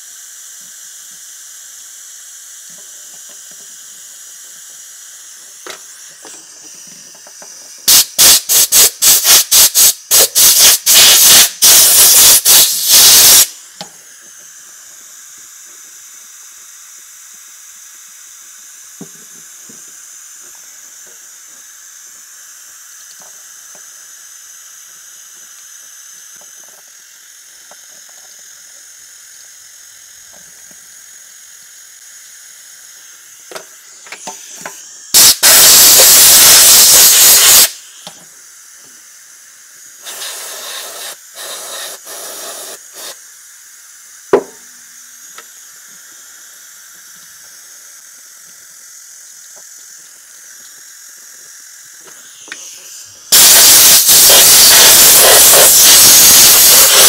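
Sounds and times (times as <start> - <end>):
aerosol spray bursts: 7.8 - 13.8, 33.2 - 38.2, 39.9 - 43.3, 49.3 - 57.0.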